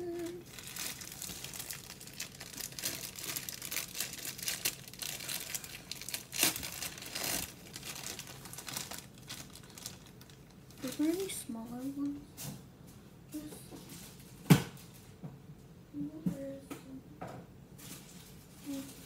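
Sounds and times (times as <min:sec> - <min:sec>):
crinkly packaging rustling: 0:00.0 - 0:12.2, 0:13.7 - 0:15.2, 0:17.8 - 0:19.0.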